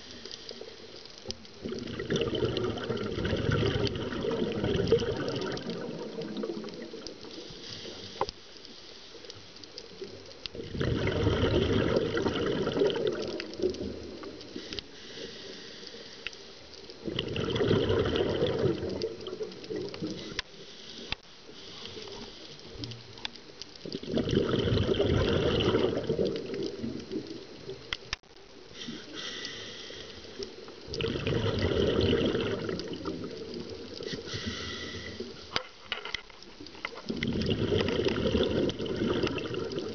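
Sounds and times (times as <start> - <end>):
exhaled bubbles underwater: 1.3 - 8.0, 10.0 - 14.6, 17.0 - 20.4, 23.8 - 28.0, 30.2 - 35.6, 36.9 - 39.9
regulator hiss: 14.4 - 16.8, 28.7 - 30.8, 34.0 - 35.6.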